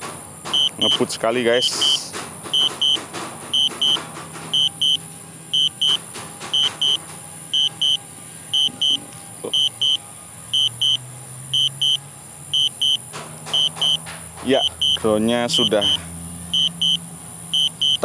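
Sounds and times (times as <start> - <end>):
remote controller beeping in pairs: 0.5 - 1.1, 2.6 - 3.0, 3.6 - 4.0, 4.6 - 5.0, 5.6 - 6.0, 6.6 - 7.0, 7.6 - 10.0, 10.6 - 11.0, 11.6 - 12.0, 12.6 - 14.0, 14.6 - 16.0, 16.6 - 18.0.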